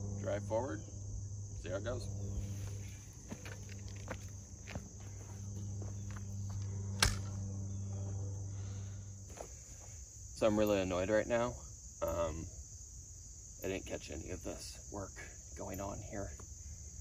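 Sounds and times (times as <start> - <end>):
insect drone: 0.0 - 17.0
footsteps on loose dirt: 2.4 - 6.8, 9.2 - 10.0.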